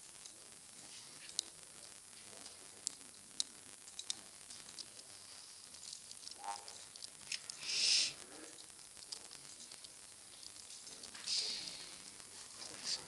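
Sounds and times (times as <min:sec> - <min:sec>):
steady background hiss: 0:00.0 - 0:13.0
short breathy hiss: 0:07.3 - 0:08.5, 0:11.2 - 0:12.1.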